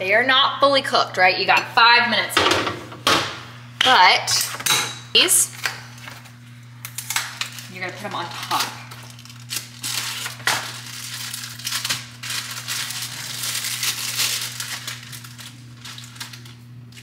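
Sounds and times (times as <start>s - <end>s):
low steady hum: 0.0s - 17.0s
plastic wrapper crinkling: 6.8s - 17.0s.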